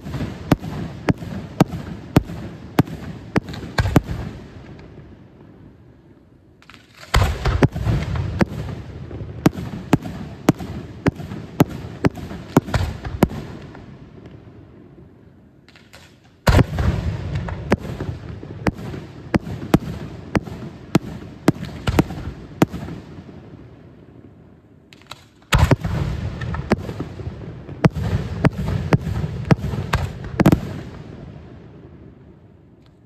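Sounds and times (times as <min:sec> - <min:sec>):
fireworks heavy bang: 0:00.0 - 0:04.6, 0:06.7 - 0:13.9, 0:15.7 - 0:23.4, 0:25.5 - 0:31.3
fireworks sharp cracks: 0:00.0 - 0:05.0, 0:06.6 - 0:14.4, 0:15.6 - 0:23.5, 0:24.9 - 0:31.3.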